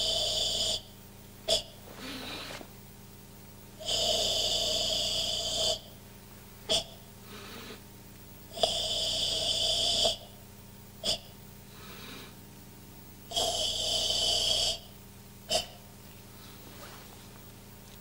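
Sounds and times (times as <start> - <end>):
forceful hissing exhalations: 1.8 - 2.7, 7.2 - 7.8.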